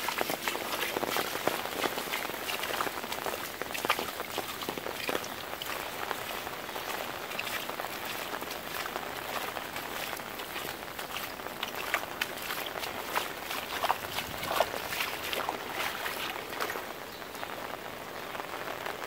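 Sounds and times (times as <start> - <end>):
shallow water running: 0.0 - 17.1
rain on concrete pavement: 0.0 - 19.0.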